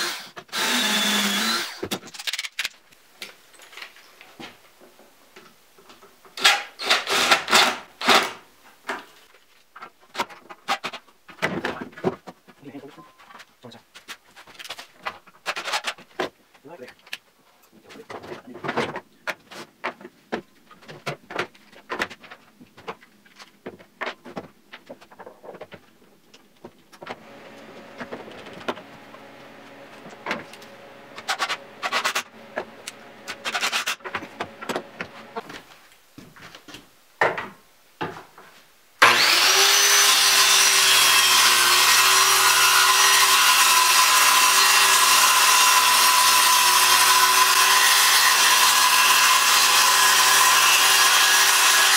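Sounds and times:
circular saw cutting plywood: 0.0 - 1.8, 27.2 - 35.5, 39.0 - 51.9
impact driver driving screws: 6.4 - 8.4.

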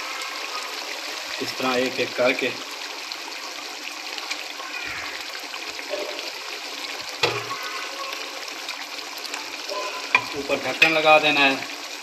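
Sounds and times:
gravy bubbling and sizzling in a pan: 0.0 - 12.0.

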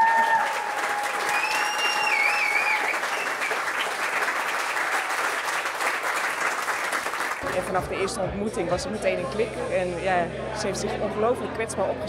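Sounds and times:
long held cheers: 0.0 - 4.0
audience applauding: 0.0 - 7.6.

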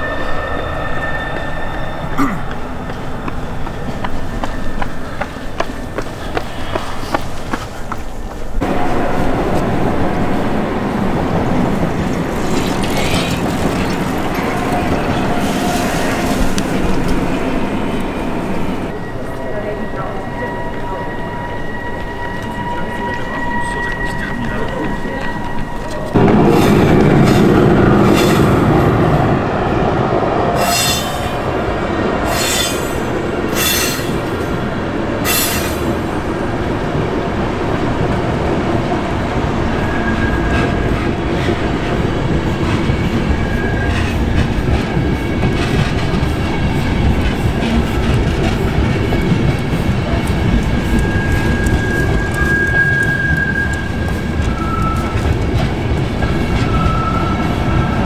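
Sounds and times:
train wheels rumbling on rail: 0.0 - 58.0
high-pitched wheel squeals: 18.9 - 26.1, 30.6 - 31.5, 32.2 - 34.6, 35.2 - 36.1.

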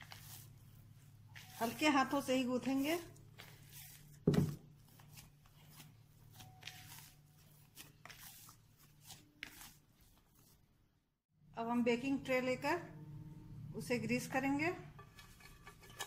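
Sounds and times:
hands kneading dough: 0.0 - 11.0
dough thump: 4.2 - 4.8.

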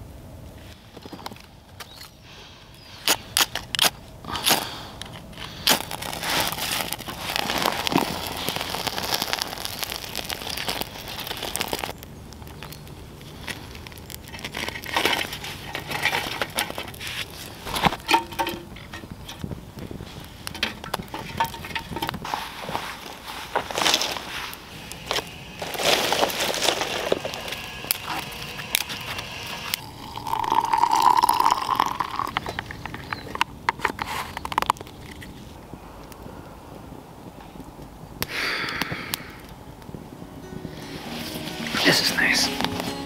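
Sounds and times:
small fire crackling: 0.4 - 43.0
twigs snapping: 3.0 - 36.5.

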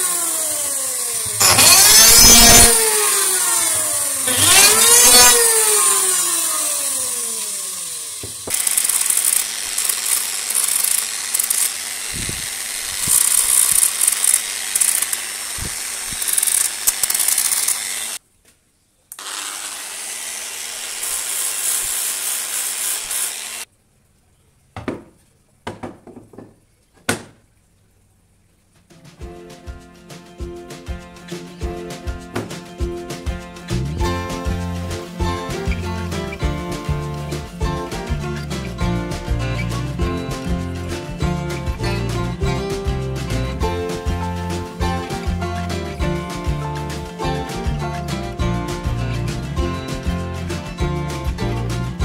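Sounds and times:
angle grinder sanding wood: 0.0 - 18.2, 19.2 - 23.7, 31.3 - 52.0
electric planer winding down: 0.0 - 18.2, 19.2 - 23.7, 34.2 - 41.9
wood knocking on steel workbench: 24.8 - 27.4.

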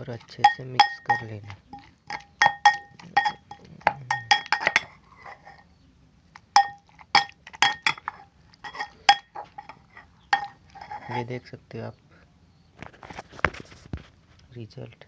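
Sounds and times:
metal pestle clinking in mortar: 0.3 - 5.6, 6.5 - 11.3.

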